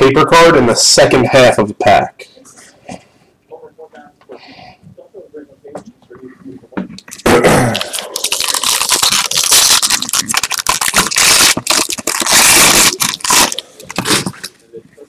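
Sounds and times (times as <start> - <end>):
foil wrapper tearing and crinkling: 7.0 - 14.4.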